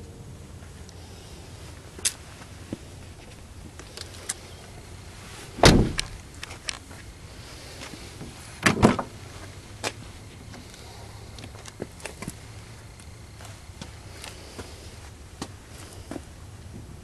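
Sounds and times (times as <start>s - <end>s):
car door shutting with thud: 5.6s - 6.1s
car door latch clunk: 5.6s - 6.2s.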